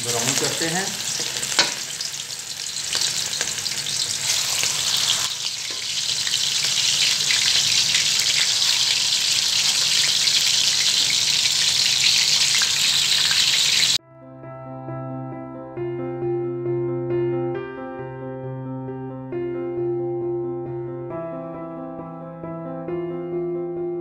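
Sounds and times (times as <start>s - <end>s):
food deep-frying in oil: 0.0s - 14.0s.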